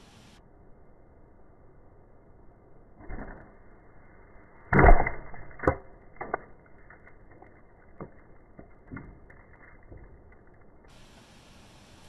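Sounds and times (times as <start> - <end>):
arrow thudding into wood: 4.7 - 10.4
sharp click: 4.8 - 9.1.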